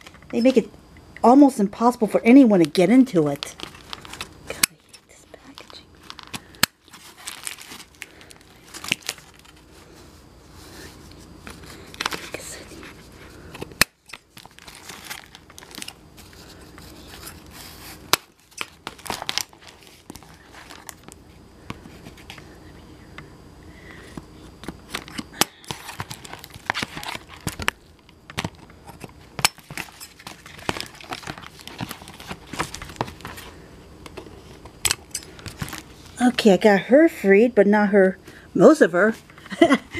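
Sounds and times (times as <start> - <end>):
packaging crinkling and tearing: 3.2 - 9.7, 11.4 - 21.2, 24.6 - 33.5, 34.4 - 36.2.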